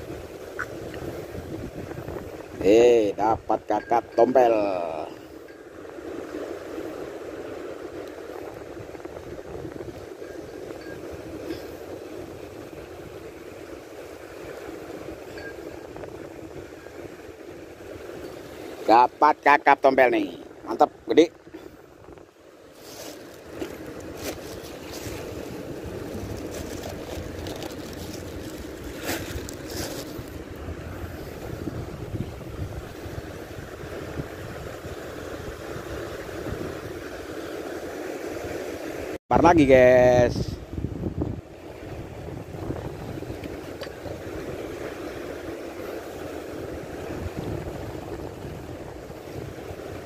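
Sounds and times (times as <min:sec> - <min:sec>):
wind buffeting microphone: 0:00.0 - 0:18.8, 0:20.5 - 0:50.0
sea surf: 0:00.0 - 0:50.0
handling rustles: 0:22.7 - 0:30.4
plastic bag rustle: 0:22.7 - 0:30.4.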